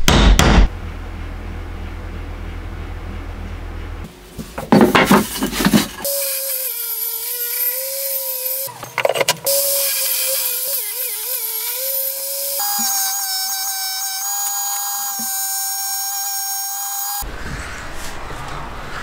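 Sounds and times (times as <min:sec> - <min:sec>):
router motor high whine: 0:06.1 - 0:08.8, 0:09.5 - 0:17.2.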